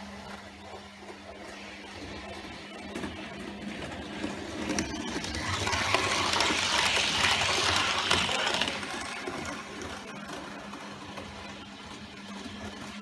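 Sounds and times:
model train wheels rattling: 4.8 - 9.3.

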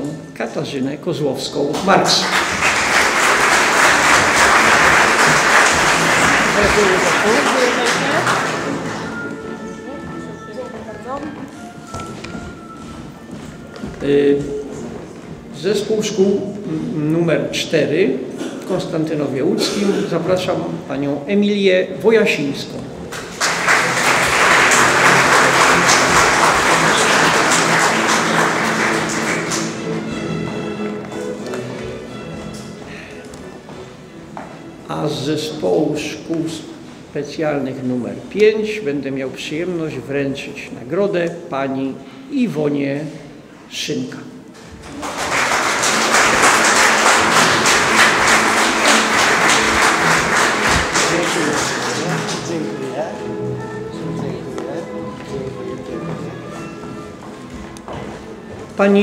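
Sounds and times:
background music: 0.0 - 59.0
audience applauding: 1.7 - 9.4, 23.1 - 30.2, 44.7 - 53.0.

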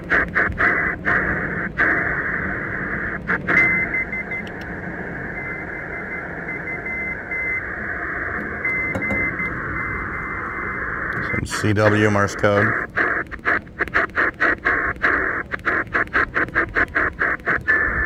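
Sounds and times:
radio band hiss: 0.0 - 18.0
tuning clicks: 3.2 - 18.0
morse code tone: 3.5 - 4.5, 5.3 - 12.9.

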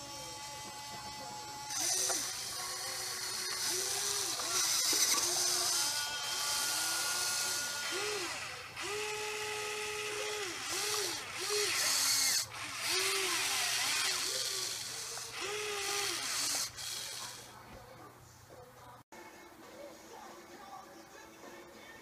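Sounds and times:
electric motors whining: 0.0 - 17.6.

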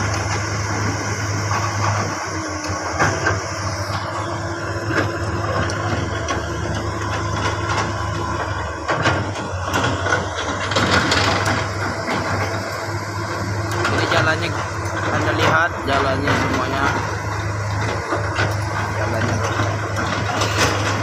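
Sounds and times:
excavator diesel engine droning: 0.0 - 21.0
machine knocks and clanks: 4.8 - 21.0.

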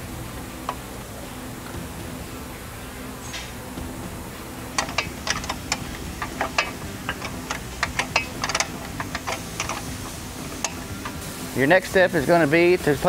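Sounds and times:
hand ratchet clicking: 4.8 - 11.2.

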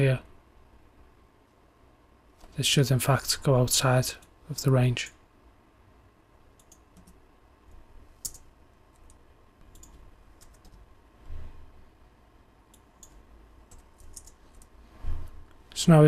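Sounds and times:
keyboard typing: 6.6 - 7.2, 8.2 - 10.9, 12.7 - 14.7.

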